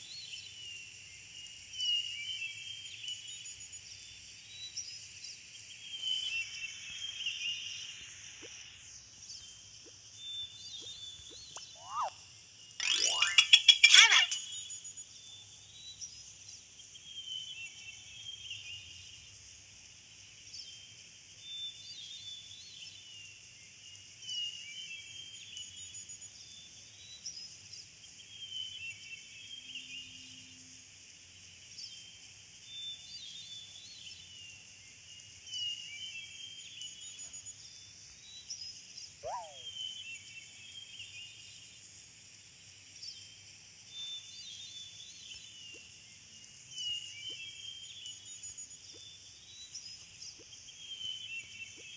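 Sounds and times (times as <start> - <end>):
high insect-like hiss: 0.1 - 13.6, 30.6 - 51.9
birds chirping: 10.4 - 12.2, 12.8 - 14.6, 39.2 - 39.9
whistled glide: 39.2 - 39.7.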